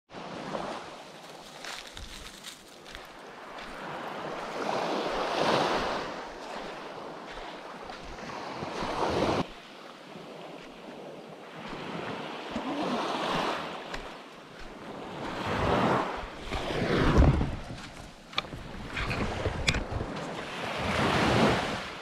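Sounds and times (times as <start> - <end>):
small waves washing on sand: 0.1 - 22.0
wind buffeting microphone: 14.6 - 21.8.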